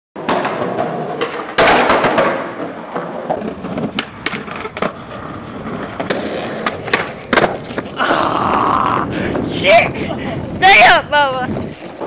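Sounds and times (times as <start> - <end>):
skateboard clacking on ground: 0.2 - 8.0, 11.2 - 12.0
skateboard wheels rolling on concrete: 0.2 - 12.0.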